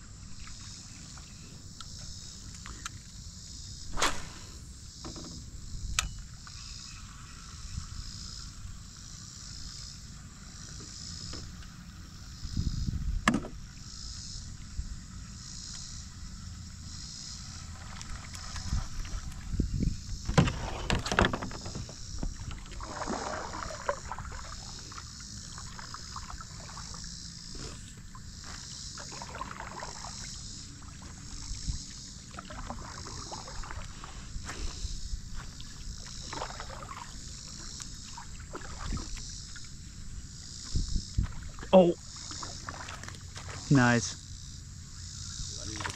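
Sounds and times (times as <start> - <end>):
gear clattering in boat: 17.6 - 24.3.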